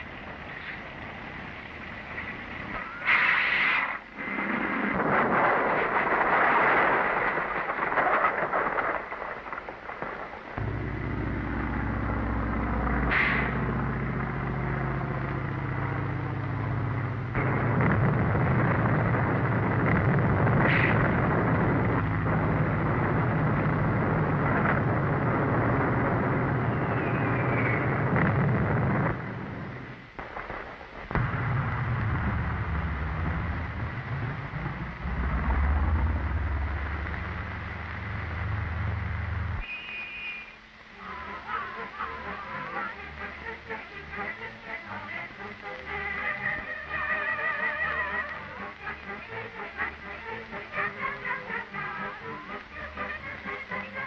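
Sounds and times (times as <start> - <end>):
noisy rumble with sharp flares: 0.0 - 54.0
steady low engine drone: 10.6 - 30.2, 31.2 - 39.6.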